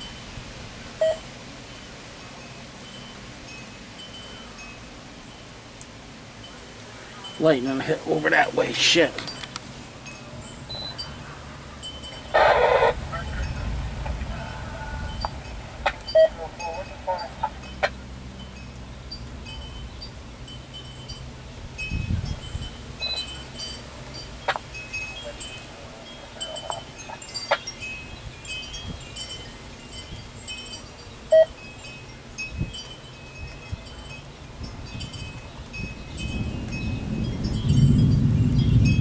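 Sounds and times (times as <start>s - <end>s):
wind chimes ringing: 1.0s - 5.6s, 6.4s - 39.0s
low rumble: 12.9s - 20.4s.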